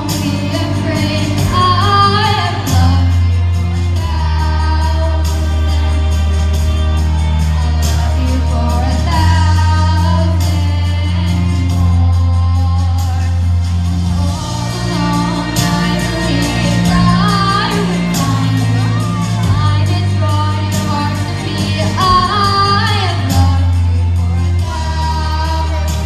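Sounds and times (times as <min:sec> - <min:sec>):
girl singing into a microphone: 0:00.0 - 0:03.3, 0:08.2 - 0:13.3, 0:19.4 - 0:23.8
backing track with bass: 0:00.0 - 0:26.0.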